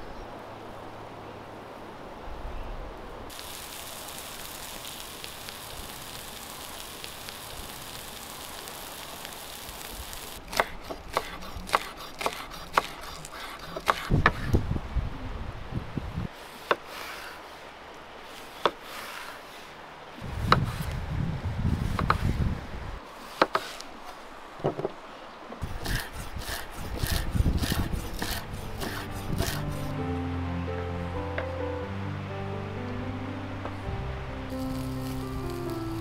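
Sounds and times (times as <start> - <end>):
meat hissing over fire: 3.3 - 14.1, 25.6 - 29.9, 34.5 - 36.0
knife chopping on wooden board: 10.5 - 14.4
low rumble: 32.4 - 36.0.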